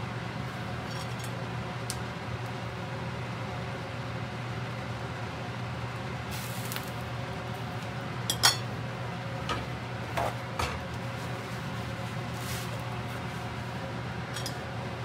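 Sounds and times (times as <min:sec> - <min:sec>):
frying pan clinking on cooktop: 0:08.3 - 0:08.7.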